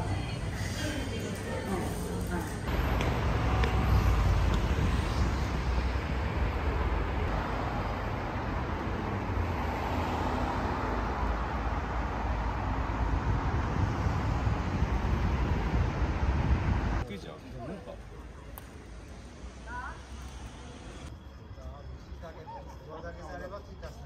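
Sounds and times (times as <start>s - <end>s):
cars passing on busy road: 0.0s - 22.0s
wind rumble on microphone: 2.7s - 7.4s, 11.5s - 17.0s.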